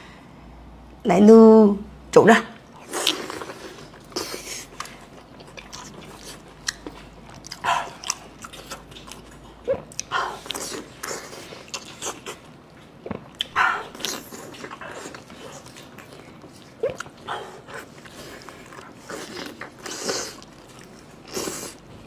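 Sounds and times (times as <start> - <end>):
wet biting and chewing: 2.8 - 21.9.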